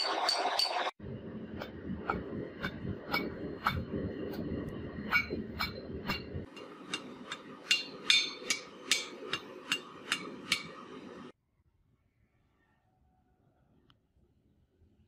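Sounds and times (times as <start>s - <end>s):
hammer striking iron on anvil: 0.0s - 0.9s, 5.1s - 11.3s.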